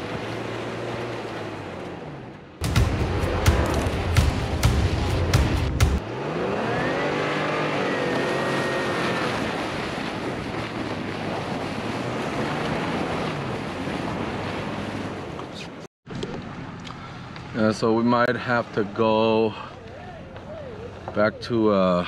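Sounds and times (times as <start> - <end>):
vehicle engine: 0.0 - 13.8
road and wind noise: 0.0 - 22.0.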